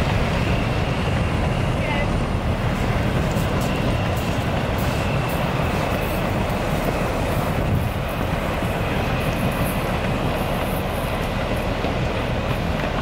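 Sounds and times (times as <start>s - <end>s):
hovercraft engines rumbling: 0.0s - 13.0s.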